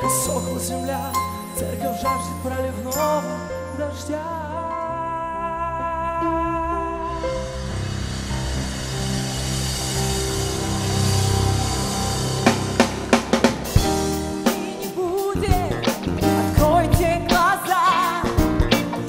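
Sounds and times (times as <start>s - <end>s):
person singing: 0.0s - 7.8s, 14.4s - 19.0s
bass: 0.0s - 19.0s
keyboard chords: 0.0s - 19.0s
drum kit hits: 7.1s - 19.0s.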